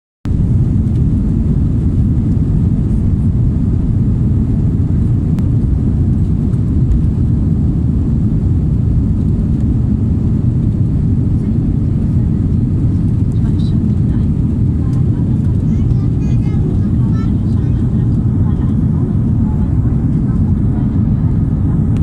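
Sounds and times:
jet engines low rumble: 0.2 - 22.0.

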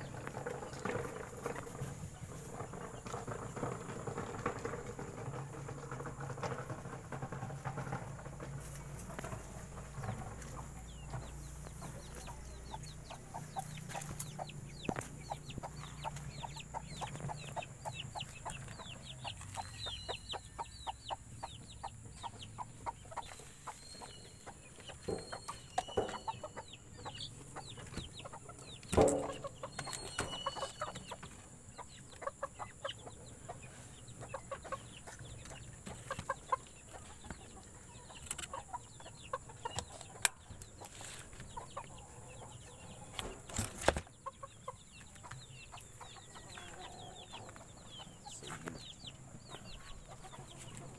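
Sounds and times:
loud knock: 28.9 - 29.5.

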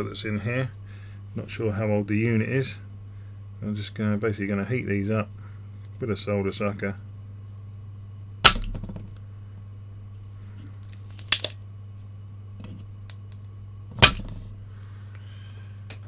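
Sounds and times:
low steady hum: 0.0 - 16.0
desoldering pump plunger snapping: 13.1 - 14.4.

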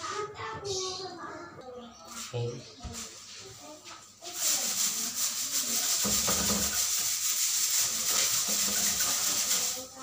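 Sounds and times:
broom scratching metal grille: 3.0 - 10.0.

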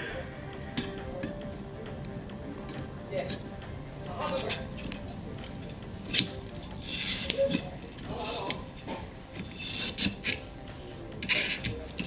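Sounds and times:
plastic rubbing and scraping: 4.2 - 12.0.

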